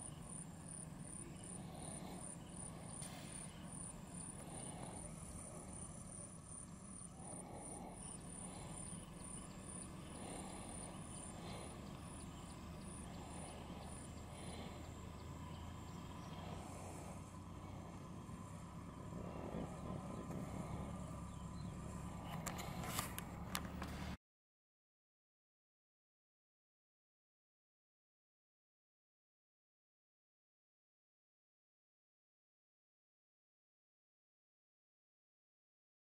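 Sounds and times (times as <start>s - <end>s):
cricket chirping: 0.0s - 23.9s
low steady hum: 0.0s - 24.2s.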